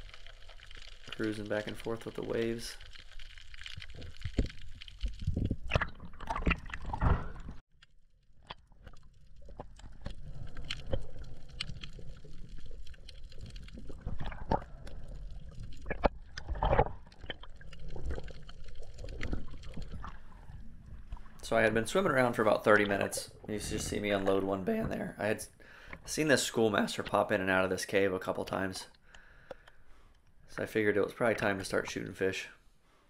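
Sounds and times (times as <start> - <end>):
muffled underwater sloshing and gurgling: 8.7 - 25.1.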